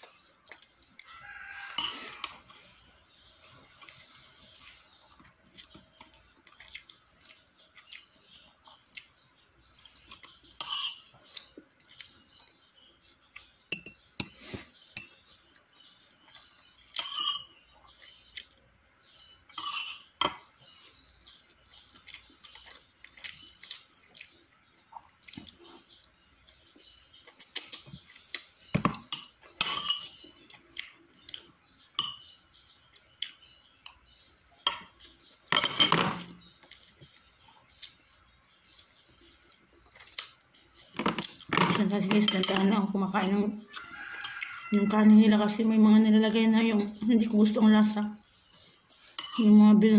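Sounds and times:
cutlery clinking on plates: 0:01.6 - 0:02.4, 0:10.6 - 0:11.2, 0:16.9 - 0:17.6, 0:19.5 - 0:20.5, 0:28.8 - 0:30.2, 0:31.9 - 0:32.3, 0:34.6 - 0:36.4, 0:49.1 - 0:49.6.

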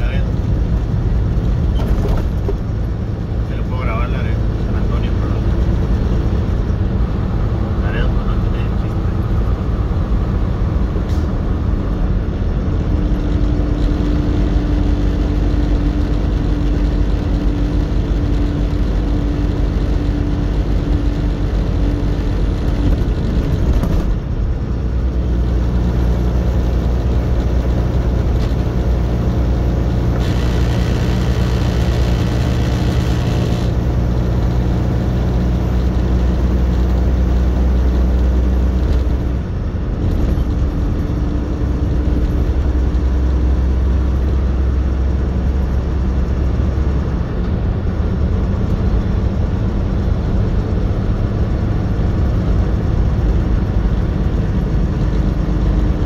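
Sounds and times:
truck engine and road noise: 0:00.0 - 0:56.0.

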